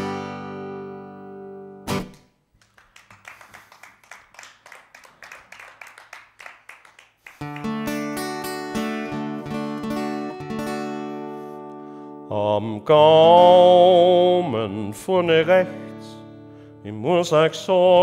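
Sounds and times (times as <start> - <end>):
loud rhythmic guitar strumming: 0.0 - 2.4, 7.4 - 12.3
muted guitar strumming: 7.4 - 12.2.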